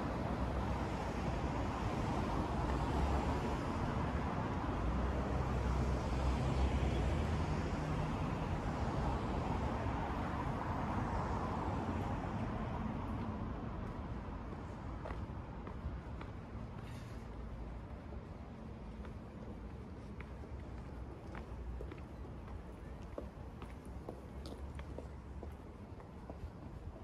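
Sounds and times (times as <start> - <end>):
city street traffic: 0.0 - 27.0.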